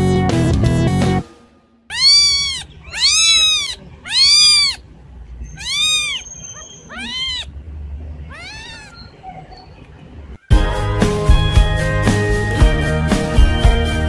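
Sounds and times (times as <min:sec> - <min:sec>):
kitten mewing: 0:01.9 - 0:04.8, 0:05.4 - 0:07.5, 0:08.2 - 0:09.2.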